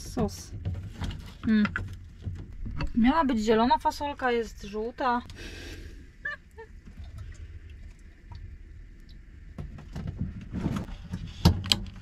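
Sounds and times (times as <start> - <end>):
low steady rumble: 0.0 - 12.0.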